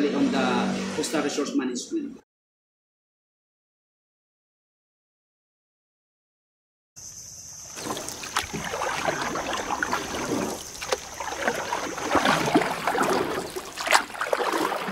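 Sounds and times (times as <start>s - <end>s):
water splashing and gurgling: 7.7s - 14.9s.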